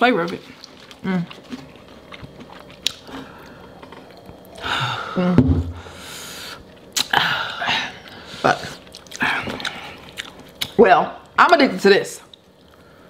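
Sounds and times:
mouth and eating noises: 0:00.1 - 0:04.7, 0:06.5 - 0:11.4.

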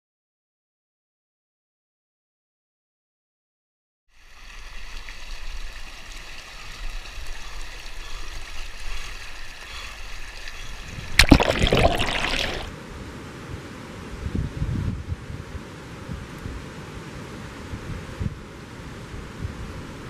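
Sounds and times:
river water flowing: 0:04.1 - 0:12.7.

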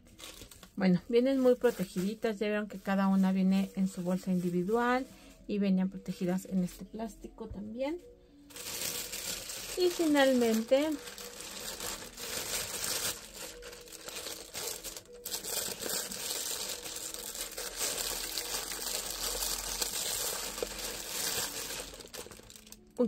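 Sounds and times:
plastic bag crinkling: 0:00.0 - 0:05.0, 0:08.5 - 0:23.0.

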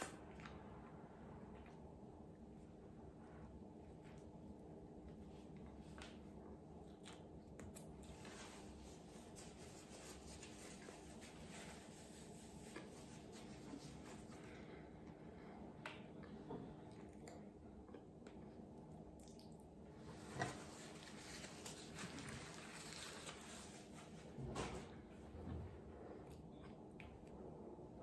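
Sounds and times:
room hiss: 0:07.8 - 0:16.1
paper rustling: 0:20.5 - 0:24.8.

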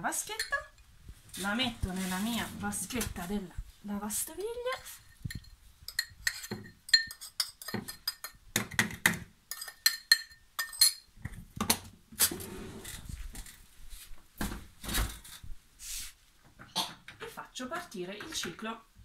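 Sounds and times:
metal spoon clinking ceramic bowl: 0:00.4 - 0:00.7, 0:05.2 - 0:08.4, 0:09.5 - 0:11.1.

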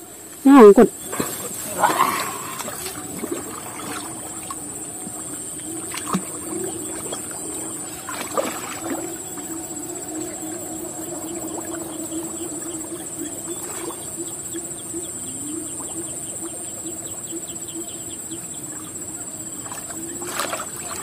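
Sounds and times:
faint bird chirping: 0:00.0 - 0:21.0
low hum: 0:00.9 - 0:18.1
high-pitched drone: 0:06.4 - 0:16.1.

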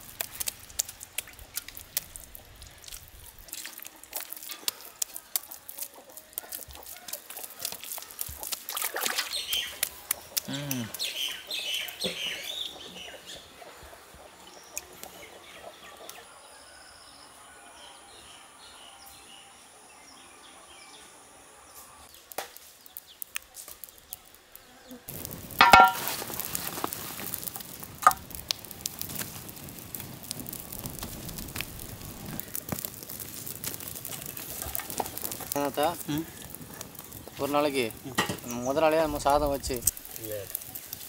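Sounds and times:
wood fire crackling: 0:00.0 - 0:13.5, 0:22.0 - 0:41.0
faint outdoor ambience: 0:00.0 - 0:41.0.

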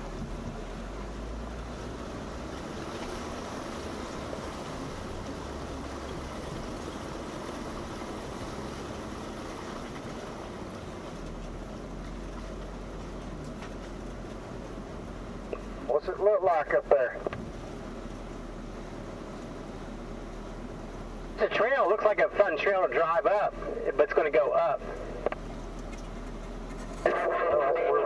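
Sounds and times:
car engine running low: 0:00.0 - 0:28.0
creek water rushing: 0:00.0 - 0:28.0.

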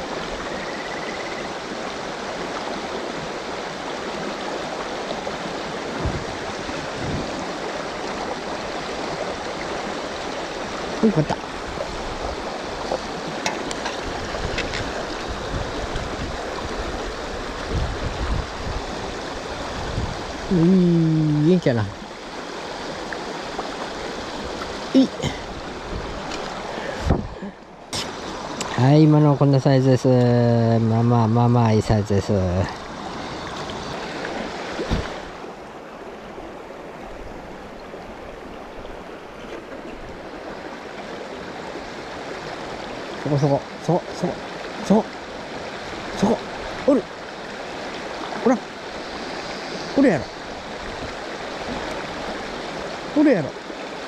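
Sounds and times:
river current rushing: 0:00.0 - 0:54.0
short thump: 0:27.0 - 0:27.4, 0:34.8 - 0:35.2.

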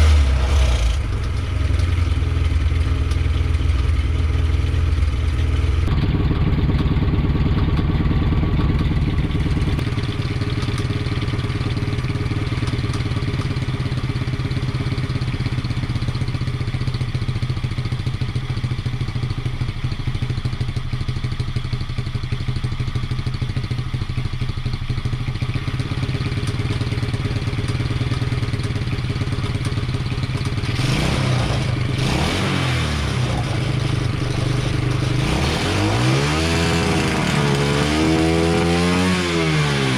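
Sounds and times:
engine revving: 0:00.0 - 0:13.6, 0:25.7 - 0:39.9
small engine idling: 0:00.0 - 0:39.9.

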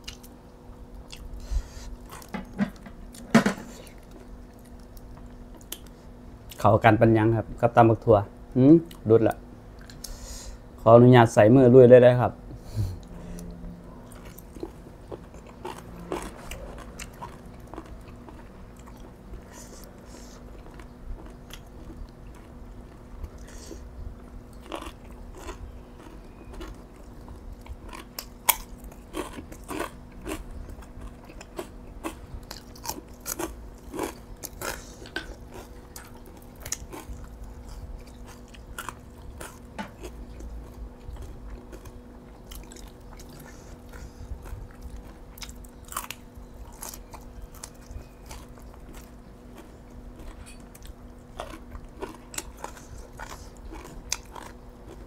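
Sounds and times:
chewing and crunching: 0:00.0 - 0:06.7, 0:13.0 - 0:55.0
faint steady hum: 0:00.0 - 0:55.0.

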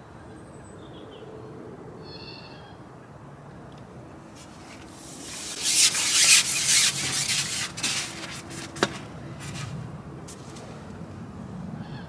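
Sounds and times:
fishing pole rasping on roller: 0:04.7 - 0:09.8.

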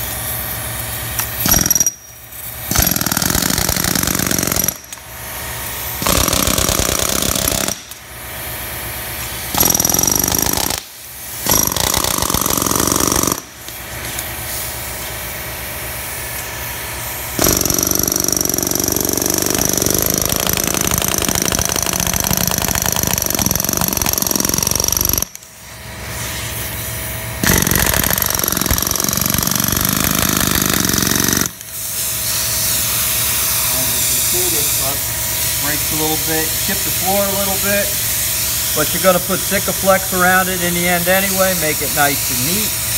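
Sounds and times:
air hammer chattering: 0:01.4 - 0:05.0, 0:06.0 - 0:08.1, 0:09.5 - 0:13.7, 0:17.4 - 0:25.4, 0:27.4 - 0:31.7.

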